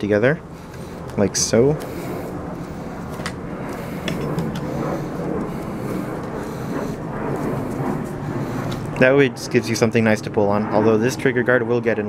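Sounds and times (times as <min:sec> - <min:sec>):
mechanical hum: 0:00.0 - 0:12.0.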